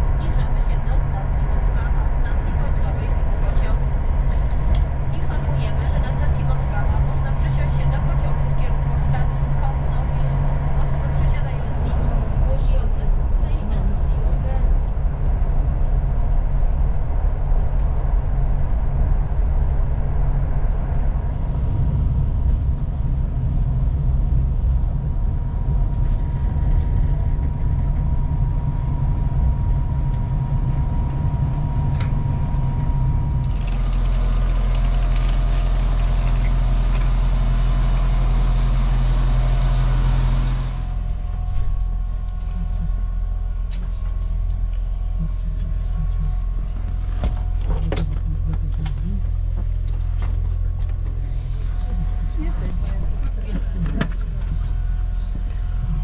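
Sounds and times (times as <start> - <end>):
low hum: 0.0 - 56.0
thin steady whine: 20.6 - 56.0.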